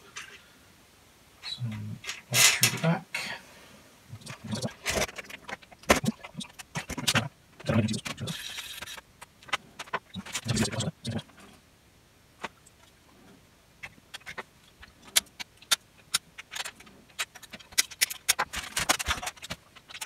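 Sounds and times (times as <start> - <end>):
small metal parts clicking and rattling: 2.0 - 2.8, 14.1 - 20.0
rustling: 12.4 - 20.0.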